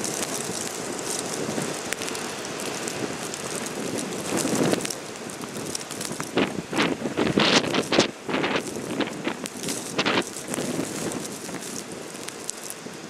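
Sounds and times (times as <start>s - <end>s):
wind buffeting microphone: 0.0s - 13.0s
faint ticks: 7.8s - 12.8s.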